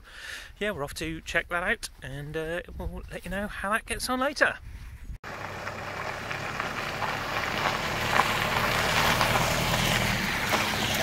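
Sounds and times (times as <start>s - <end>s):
tyres crunching on gravel: 5.2s - 11.0s
van engine running: 5.2s - 11.0s.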